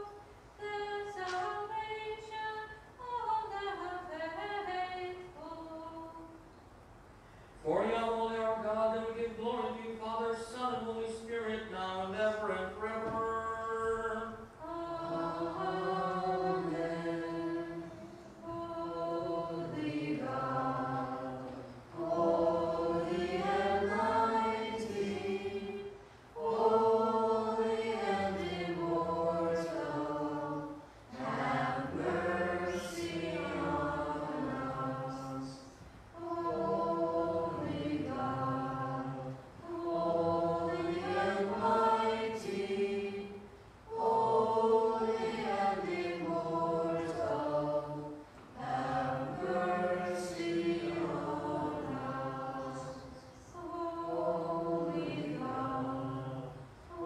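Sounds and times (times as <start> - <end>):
voices chanting: 13.9 - 57.0.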